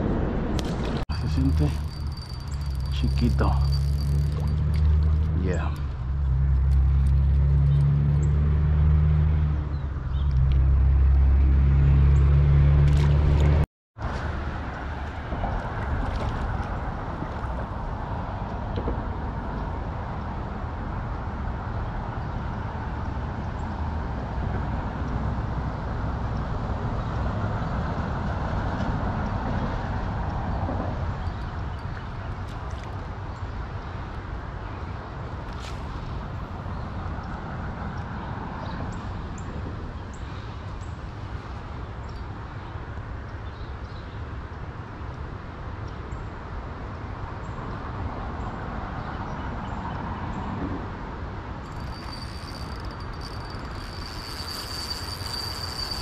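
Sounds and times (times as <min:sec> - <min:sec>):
faint steady rushing noise: 0:51.4 - 0:56.0.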